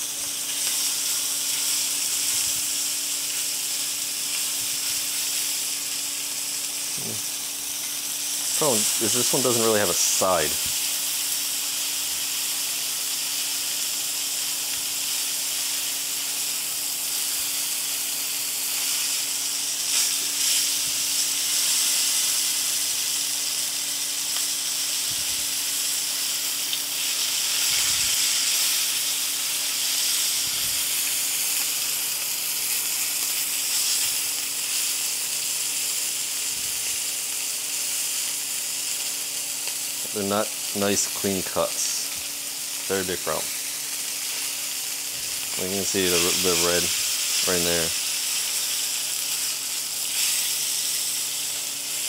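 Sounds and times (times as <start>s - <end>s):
steaks sizzling in a frying pan: 0.0s - 52.0s.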